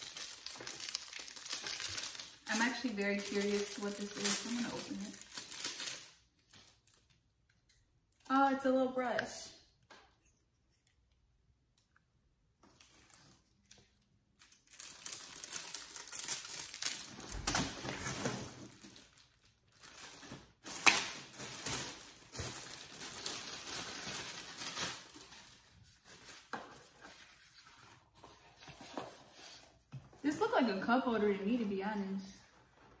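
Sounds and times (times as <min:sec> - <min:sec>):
plastic bag crinkling: 0:00.0 - 0:07.2, 0:12.6 - 0:26.5.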